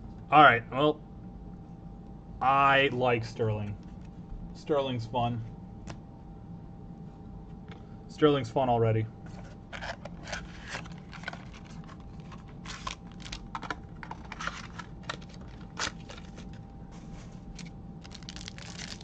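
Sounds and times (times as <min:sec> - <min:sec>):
cards shuffled in hand: 0:09.3 - 0:19.0
card wrapper crinkling and tearing: 0:09.4 - 0:16.6, 0:17.4 - 0:19.0.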